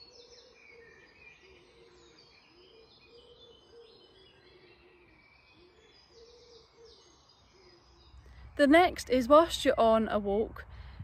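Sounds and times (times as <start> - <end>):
low rising-and-falling bird call: 0.0 - 8.6
birds chirping and warbling: 0.0 - 11.0.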